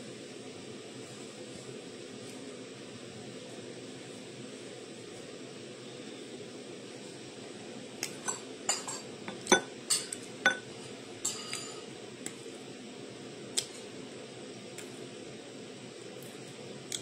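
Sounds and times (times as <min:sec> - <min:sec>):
cutlery clinking against dishes: 0:08.2 - 0:11.8.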